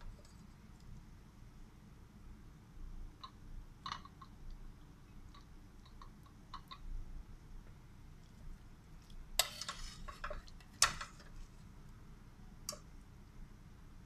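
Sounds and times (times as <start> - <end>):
metal ladle scraping a pot: 9.4 - 10.5.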